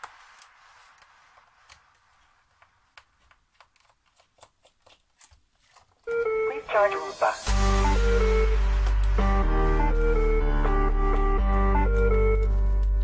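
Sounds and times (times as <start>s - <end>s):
plastic parts handled: 1.6s - 6.2s.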